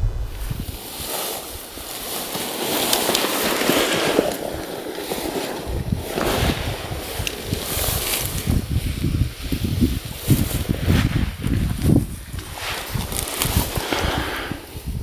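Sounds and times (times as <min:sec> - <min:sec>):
wind buffeting microphone: 0:00.0 - 0:02.2, 0:03.4 - 0:15.0.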